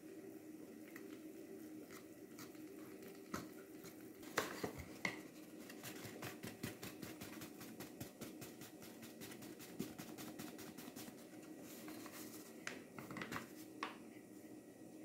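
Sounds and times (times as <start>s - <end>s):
whisk knocking on pot: 5.1s - 11.2s.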